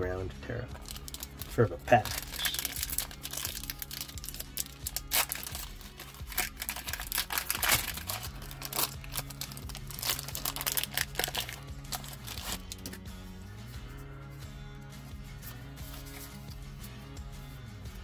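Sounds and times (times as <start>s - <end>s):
quiet background music: 0.0s - 18.0s
foil wrapper crinkling and tearing: 0.8s - 13.0s.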